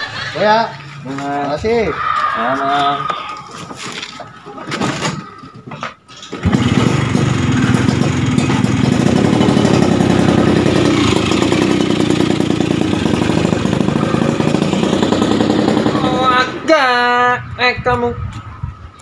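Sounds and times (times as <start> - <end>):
motorcycle engine starting and running: 6.2 - 17.0.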